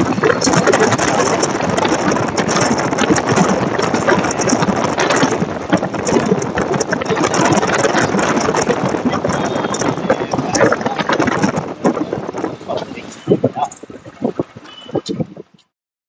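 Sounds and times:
wind rushing: 0:00.0 - 0:15.6
street traffic: 0:00.0 - 0:15.7
man speaking: 0:07.1 - 0:13.8.

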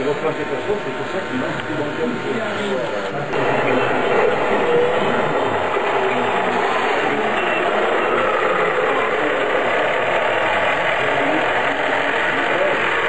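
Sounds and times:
model truck engine idling: 0:03.3 - 0:13.0.

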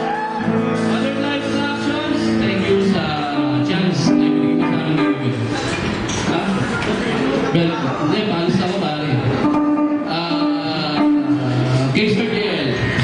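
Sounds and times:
electric guitar chords: 0:00.0 - 0:06.8, 0:07.4 - 0:13.0
bass guitar: 0:00.0 - 0:13.0
man singing into a microphone: 0:00.9 - 0:05.5, 0:10.0 - 0:13.0.

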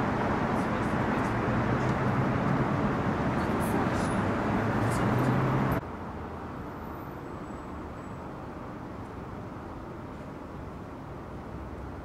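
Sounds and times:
steady engine hum: 0:00.0 - 0:06.6
city street traffic: 0:00.0 - 0:12.0.

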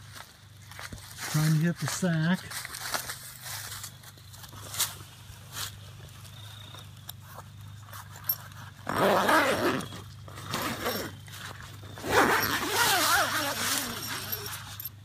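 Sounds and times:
tent zipper pulled open: 0:07.9 - 0:11.2, 0:11.9 - 0:14.9.

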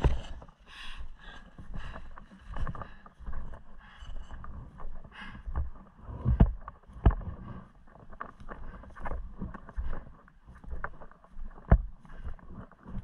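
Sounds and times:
heavy thumping steps: 0:01.8 - 0:07.5.

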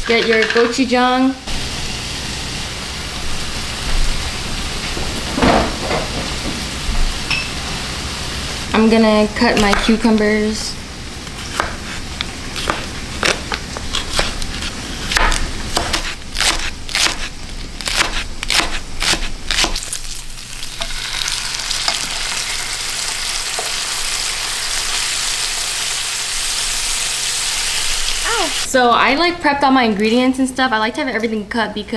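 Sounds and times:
knife chopping on cutting board: 0:09.5 - 0:10.0, 0:11.4 - 0:12.0, 0:12.6 - 0:19.8
meat sizzling in frying pan: 0:19.8 - 0:28.7.

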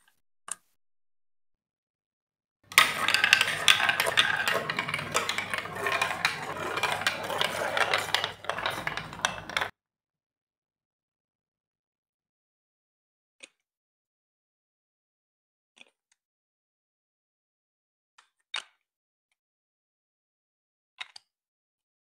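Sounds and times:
plastic ball rolling down chutes: 0:02.7 - 0:09.7.

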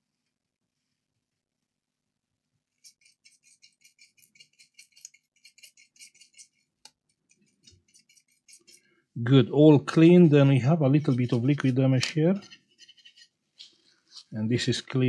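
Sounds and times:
small brush scrubbing: 0:02.7 - 0:09.1, 0:10.0 - 0:15.0.

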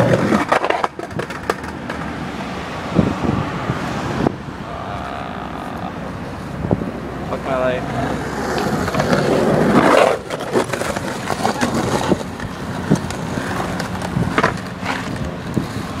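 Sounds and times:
skateboard clacks: 0:00.0 - 0:02.2, 0:08.1 - 0:16.0
road traffic passing: 0:00.0 - 0:16.0
skateboard wheels rolling on concrete: 0:00.0 - 0:16.0.

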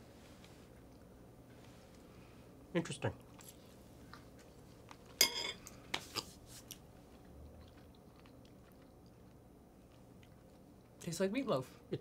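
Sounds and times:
person chewing food: 0:03.2 - 0:11.0.

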